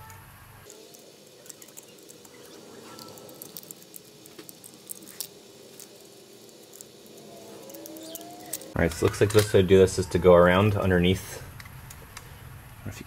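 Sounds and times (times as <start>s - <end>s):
small clicks and crackles of glass: 0.0s - 9.6s.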